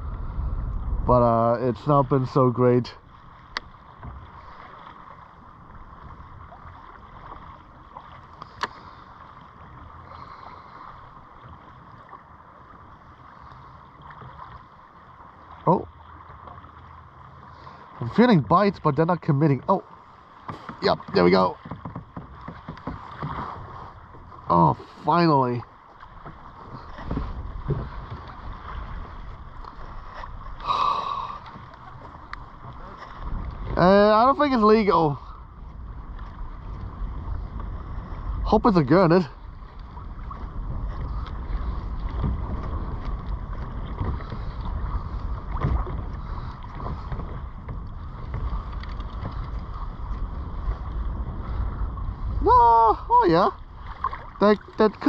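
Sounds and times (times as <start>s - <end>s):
wind on microphone: 0.0s - 2.1s, 26.6s - 55.0s
small waves lapping against hull: 0.0s - 55.0s
light knocks: 20.5s - 23.4s.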